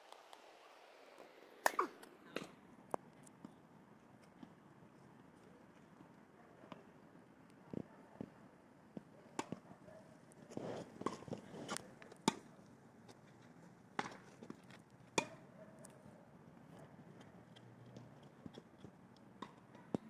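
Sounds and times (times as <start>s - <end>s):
tennis ball hits and bounces: 1.3s - 2.6s, 9.4s - 9.6s, 11.0s - 11.4s, 12.2s - 12.5s, 14.0s - 15.5s, 19.4s - 20.0s.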